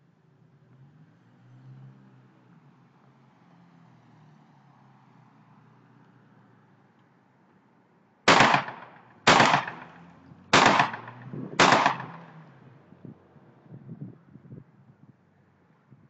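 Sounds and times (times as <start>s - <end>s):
gunshots with echo: 8.3s - 12.4s.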